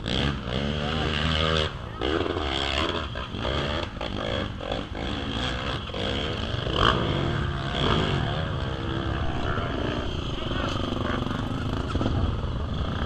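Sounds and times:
vehicle engine revving under load: 0:00.0 - 0:13.0
steady low rumble: 0:04.5 - 0:13.0.

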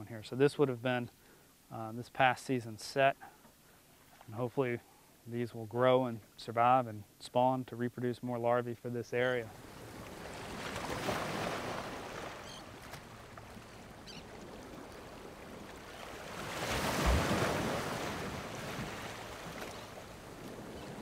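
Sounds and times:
waves washing in: 0:09.5 - 0:21.0.

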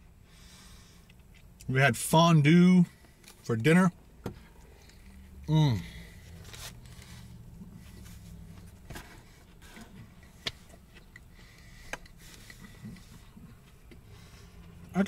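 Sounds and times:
low steady hum: 0:00.0 - 0:15.0
person chewing food: 0:06.1 - 0:14.8.

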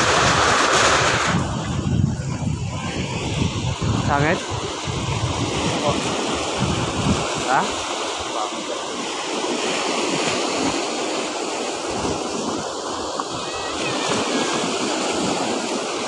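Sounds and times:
waves washing over pebbles: 0:00.0 - 0:16.0
wind buffeting microphone: 0:00.0 - 0:16.0.

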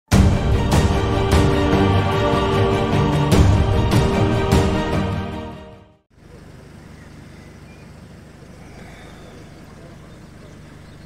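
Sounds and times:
intro music: 0:00.1 - 0:06.0
low outdoor rumble: 0:06.1 - 0:11.0
faint distant voices: 0:06.2 - 0:11.0.

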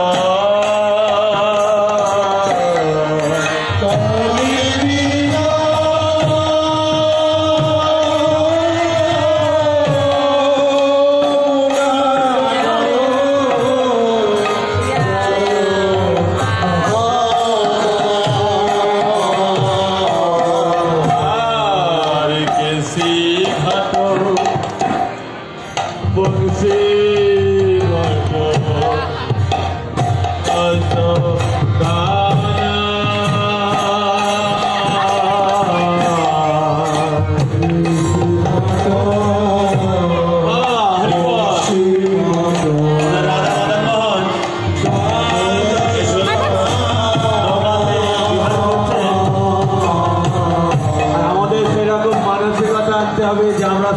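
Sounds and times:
person singing a chant: 0:00.0 - 0:24.6, 0:30.5 - 0:53.9
hand drum beat: 0:00.0 - 0:25.2, 0:25.8 - 0:53.9.

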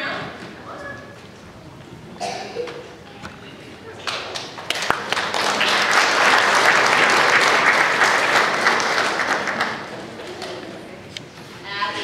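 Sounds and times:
audience clapping: 0:04.0 - 0:10.6.

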